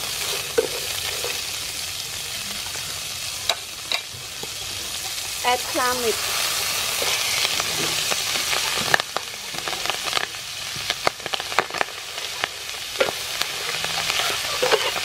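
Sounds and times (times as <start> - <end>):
meat sizzling in hot oil: 0.0 - 15.0
metal spatula scraping pan: 5.7 - 8.9, 13.0 - 15.0.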